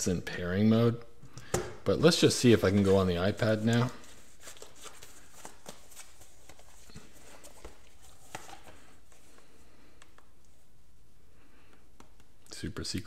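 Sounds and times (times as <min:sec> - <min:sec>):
hands tapping and rustling tablet case: 0:02.5 - 0:10.6, 0:11.7 - 0:12.5.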